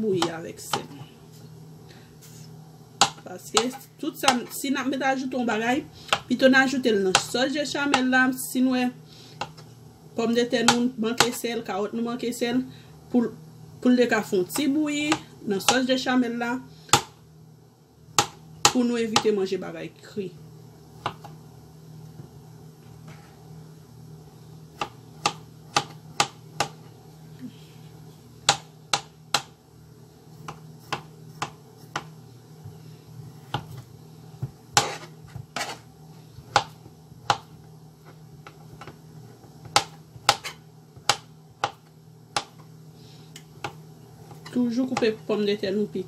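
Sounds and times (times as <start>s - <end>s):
knife chopping on cutting board: 3.0s - 4.4s, 18.2s - 19.3s, 24.8s - 26.8s, 30.4s - 32.1s, 33.4s - 33.8s, 34.4s - 35.8s, 36.4s - 37.5s, 39.6s - 42.6s.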